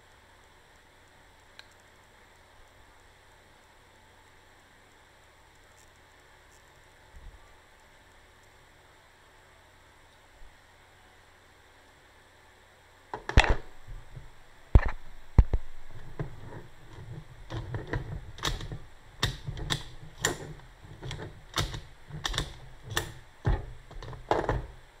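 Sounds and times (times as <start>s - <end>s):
ignition lock clicking: 17.5s - 24.8s.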